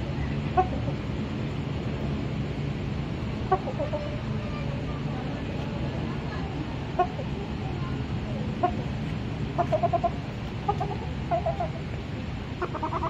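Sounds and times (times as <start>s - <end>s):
shelducks calling: 3.4s - 4.3s, 6.8s - 7.4s, 8.5s - 13.0s.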